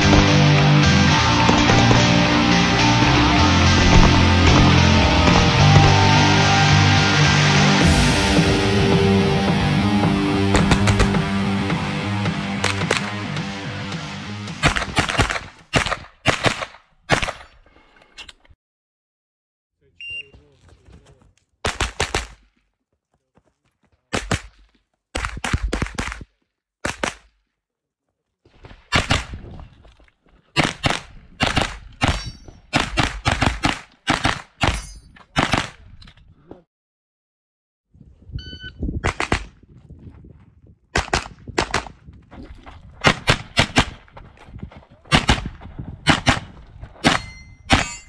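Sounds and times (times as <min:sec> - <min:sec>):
carbine gunshots: 0:10.5 - 0:11.2, 0:14.6 - 0:17.4, 0:43.0 - 0:44.1, 0:45.1 - 0:48.0
shot timer beep: 0:38.4 - 0:38.8.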